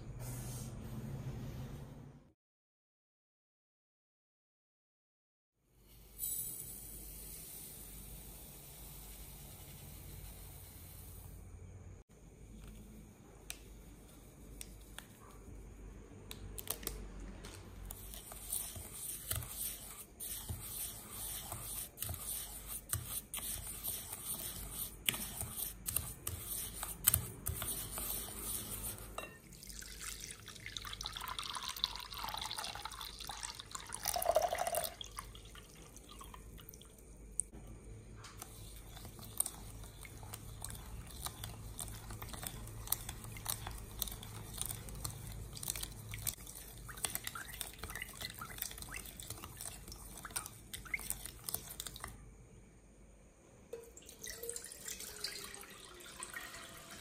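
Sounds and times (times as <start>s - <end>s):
spoon scraping glass bowl: 18.0s - 29.6s, 38.4s - 52.1s
milk pouring into bowl: 28.0s - 37.1s, 53.8s - 57.0s.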